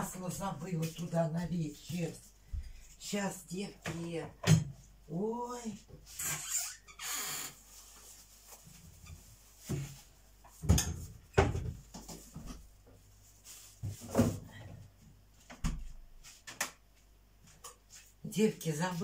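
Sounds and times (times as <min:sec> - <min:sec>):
kitchen knocks and clunks: 0:03.8 - 0:04.8, 0:09.7 - 0:12.7.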